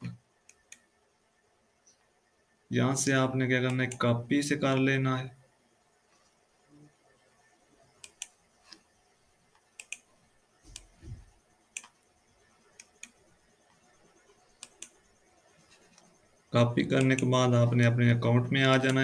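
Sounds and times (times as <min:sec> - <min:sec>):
computer mouse clicking: 0:00.5 - 0:00.9, 0:08.0 - 0:08.9, 0:09.5 - 0:10.1, 0:10.7 - 0:11.1, 0:11.7 - 0:12.0, 0:12.7 - 0:16.2, 0:16.9 - 0:17.3, 0:18.6 - 0:19.0
soft low thud: 0:11.0 - 0:11.3.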